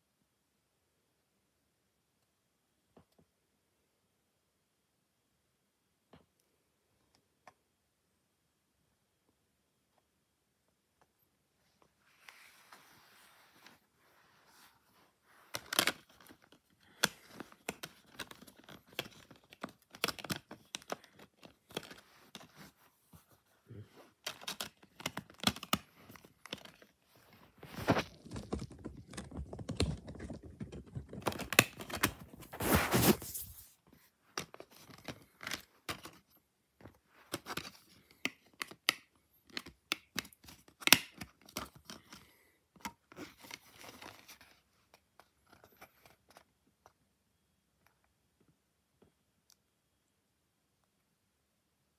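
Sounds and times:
rustling and rubbing: 11.7s - 35.4s.

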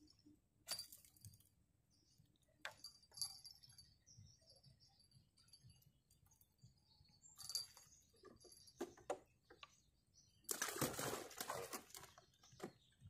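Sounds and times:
fish flapping in plastic cooler: 10.5s - 12.7s.

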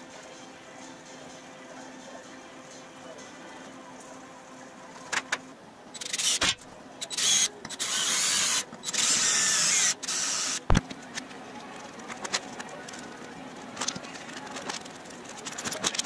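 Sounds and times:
cordless drill boring into metal: 7.1s - 10.6s.

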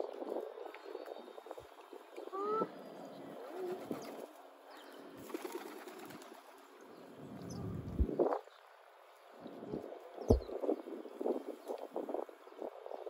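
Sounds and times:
pigeons cooing: 2.2s - 6.5s.

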